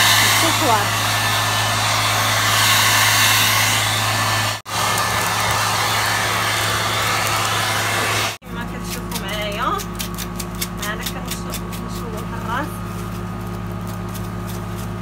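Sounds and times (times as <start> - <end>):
hair dryer blowing: 0.0 - 9.8, 10.8 - 13.6.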